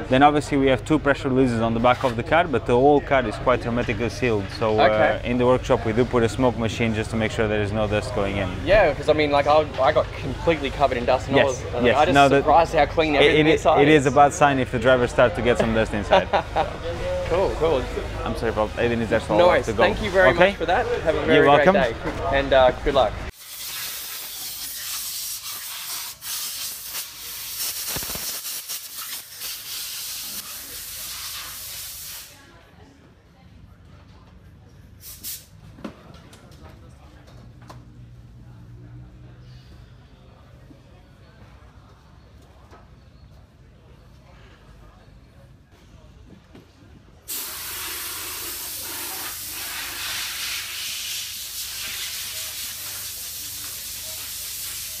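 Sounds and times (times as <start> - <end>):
loud steady hiss: 23.3 - 32.4, 47.3 - 55.0
compressed air blow gun hissing: 47.3 - 55.0.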